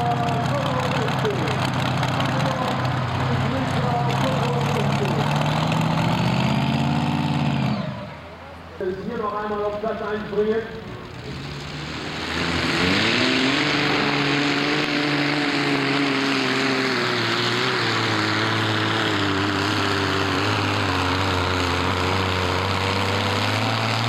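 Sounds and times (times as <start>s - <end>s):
tractor engine at full throttle: 0.0s - 24.0s.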